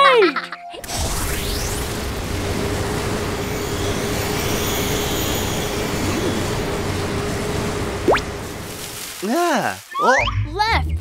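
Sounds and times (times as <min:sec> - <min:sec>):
cartoon rushing rumbling noise: 0:00.8 - 0:09.5
constant hum: 0:00.8 - 0:09.6.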